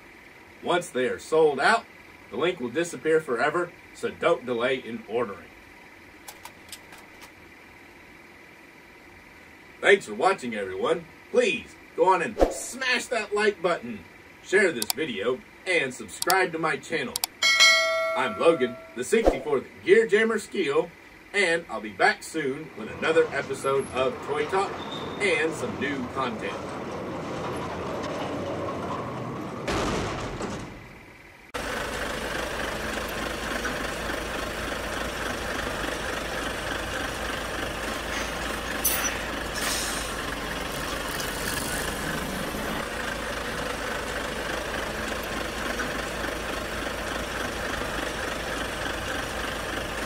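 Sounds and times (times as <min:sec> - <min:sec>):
truck engine idling: 0:00.0 - 0:12.0, 0:17.1 - 0:50.0
short air hisses: 0:38.1 - 0:40.3.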